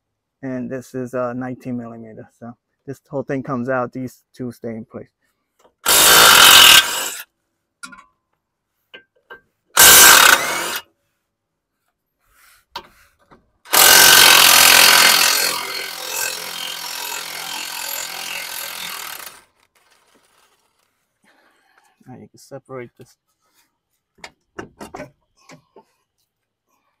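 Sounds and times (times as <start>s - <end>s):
impact wrench hammering: 5.8s - 7.1s, 9.8s - 10.8s, 13.7s - 19.4s.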